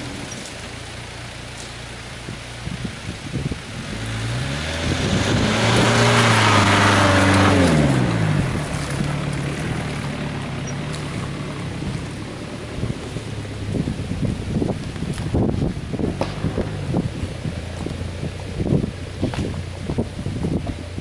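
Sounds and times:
car engine driving past: 3.8 - 13.8.

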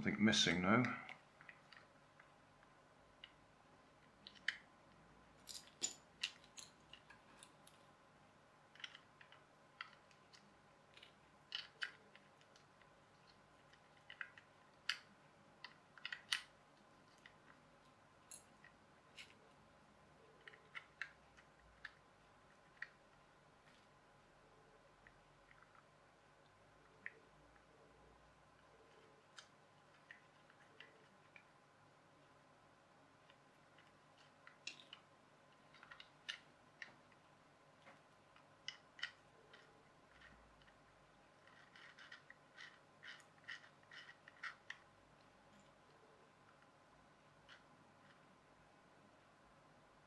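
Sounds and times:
plastic toy parts clicking: 8.7 - 12.7, 13.7 - 16.5, 41.4 - 44.8.

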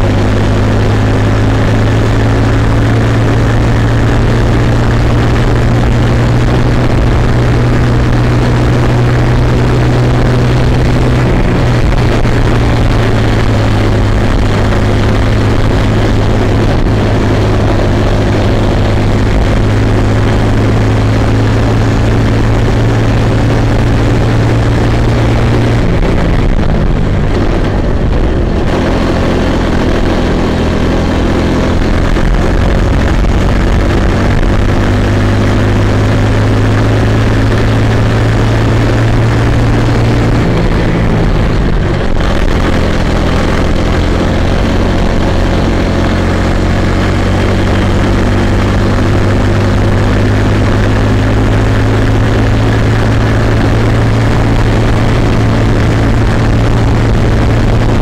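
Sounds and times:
small kart engine running: 0.0 - 58.0.

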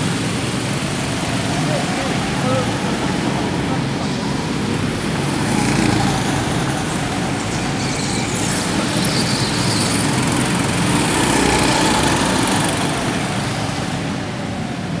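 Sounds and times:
go-kart engines running: 0.0 - 15.0.

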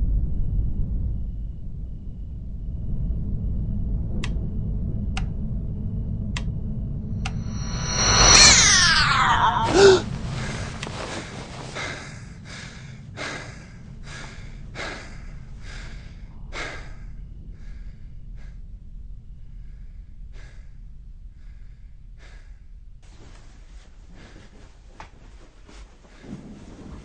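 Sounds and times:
steady low rumble: 0.0 - 27.0
man breathing heavily: 7.4 - 18.7, 19.5 - 22.8.

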